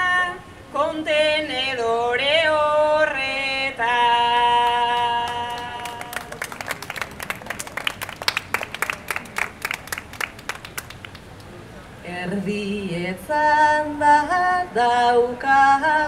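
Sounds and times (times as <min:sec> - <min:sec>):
woman singing unaccompanied: 0:00.0 - 0:06.3, 0:12.0 - 0:16.0
audience applauding: 0:05.0 - 0:11.6.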